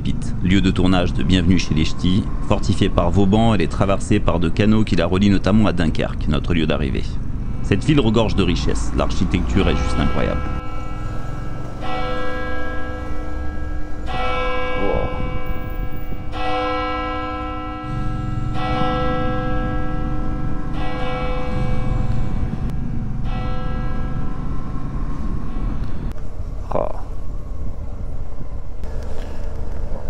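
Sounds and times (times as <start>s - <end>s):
church bell tolling: 8.0s - 26.1s
low rumble: 13.5s - 16.4s.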